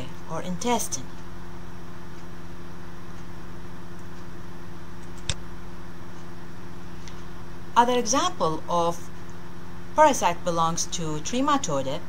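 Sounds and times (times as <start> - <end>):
low electrical hum: 0.0 - 12.0
sharp click: 5.0 - 5.4.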